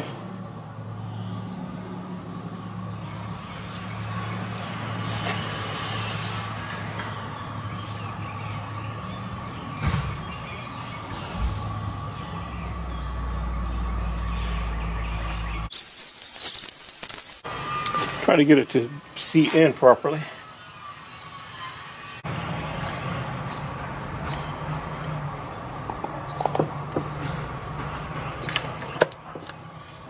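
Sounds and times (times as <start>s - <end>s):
deeper rumble: 0.0s - 15.7s
low mechanical hum: 0.0s - 30.0s
thin steady whine: 0.7s - 28.6s.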